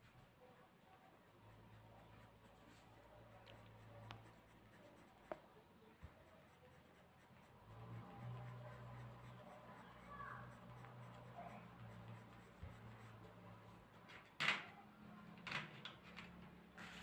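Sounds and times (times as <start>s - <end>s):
pencil scratching on paper: 0.0s - 14.4s, 16.8s - 17.0s.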